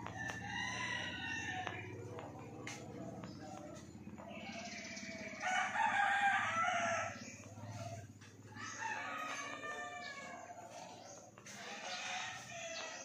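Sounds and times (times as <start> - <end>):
rooster crowing: 0.0 - 2.2, 4.6 - 7.4, 8.5 - 10.6, 11.6 - 13.0.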